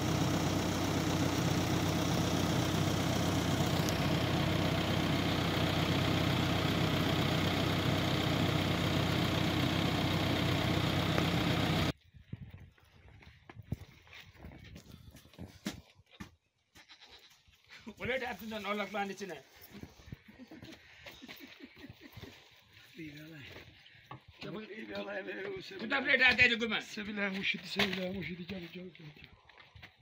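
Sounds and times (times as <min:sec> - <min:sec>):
diesel engine idling: 0:00.0 - 0:11.9.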